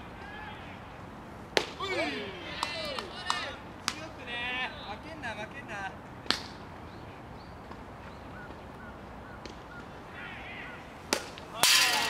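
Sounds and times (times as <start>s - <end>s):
players shouting: 0.0s - 6.0s, 9.7s - 12.0s.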